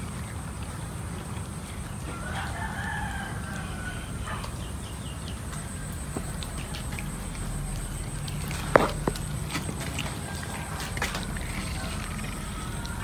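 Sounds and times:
rooster crowing: 2.0 - 4.8, 10.1 - 13.0.

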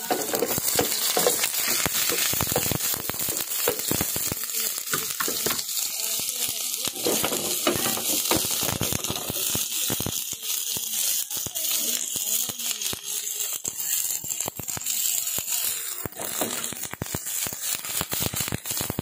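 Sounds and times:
garlic and onion sizzling in oil: 0.0 - 19.0.

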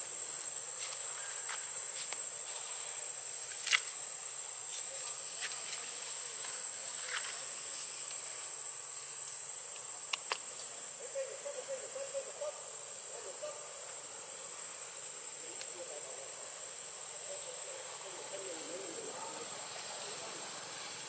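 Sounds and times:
forest background hiss: 0.0 - 21.0
insects droning: 0.0 - 21.0.

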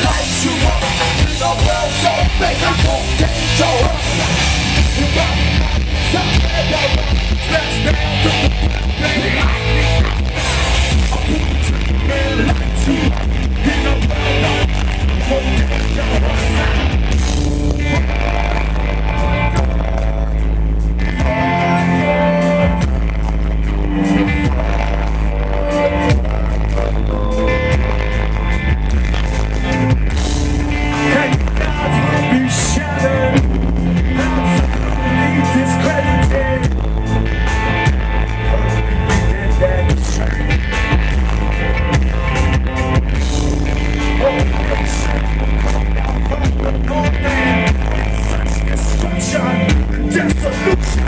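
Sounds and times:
person singing: 0.0 - 23.1, 43.8 - 51.0
bass guitar: 0.0 - 51.0
distorted electric guitar: 0.0 - 51.0
drums: 0.0 - 51.0.

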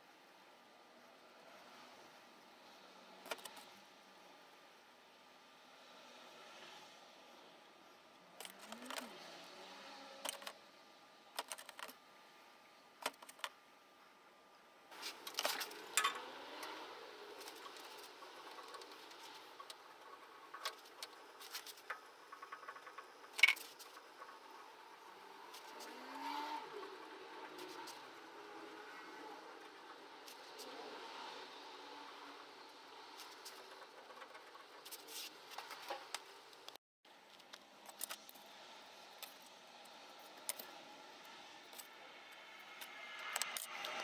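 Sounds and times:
metal bolts and nuts clinking: 15.0 - 16.2.

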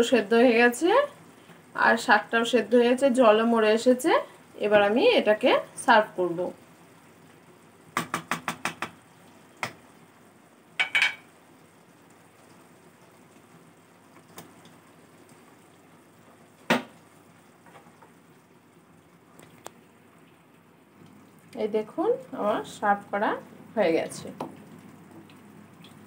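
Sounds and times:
wooden spatula knocking on pan: 8.0 - 9.0, 10.8 - 11.2.

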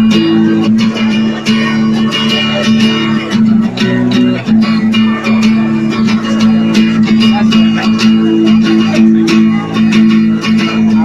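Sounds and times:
acoustic guitar strumming: 0.0 - 11.0.

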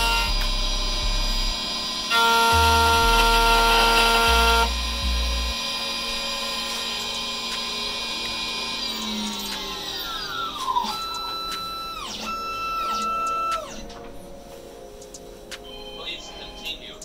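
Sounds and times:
key cutting machine motor running: 0.0 - 13.8.

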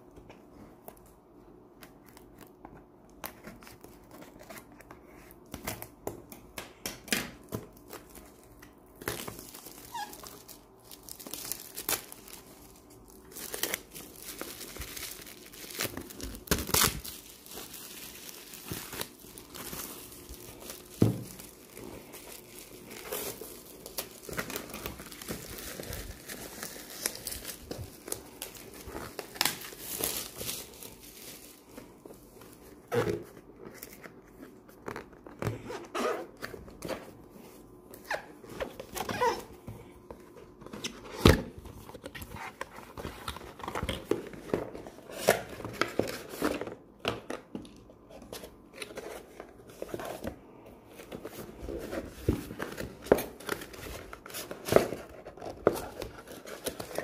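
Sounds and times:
plastic shrink-wrap tearing and crinkling: 7.8 - 33.2, 51.6 - 57.0.

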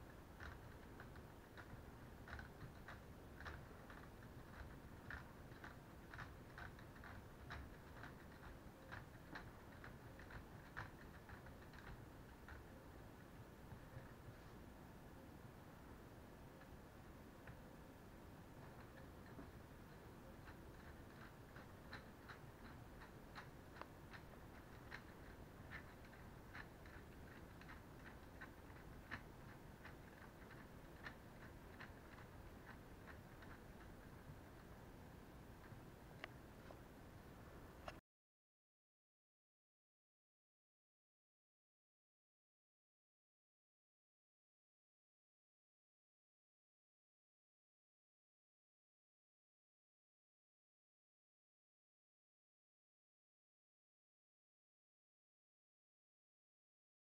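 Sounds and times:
faint small clicks: 35.5 - 36.8.

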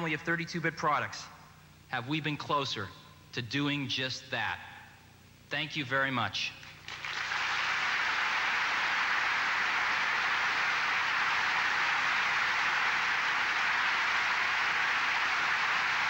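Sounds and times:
audience applauding: 6.7 - 16.0.

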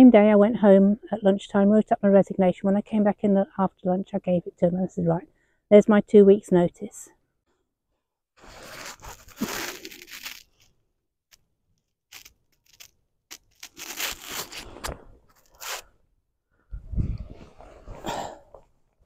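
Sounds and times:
rustling and scraping on pine needles: 8.4 - 10.7, 12.1 - 14.8.

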